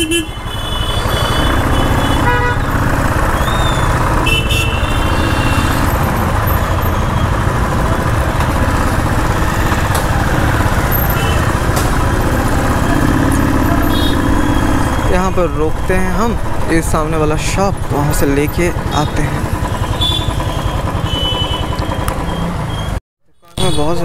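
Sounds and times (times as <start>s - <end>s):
vehicle horn honks: 0.0s - 2.8s, 4.2s - 5.9s, 10.9s - 11.7s, 13.6s - 14.8s, 19.0s - 21.8s, 23.4s - 24.0s
motorcycle engine rumble: 0.0s - 23.0s.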